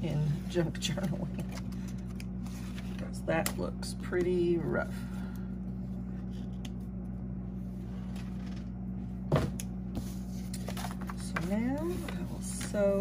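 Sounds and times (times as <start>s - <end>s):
steady low hum: 0.0s - 13.0s
paper rustling: 0.9s - 3.2s, 10.0s - 13.0s.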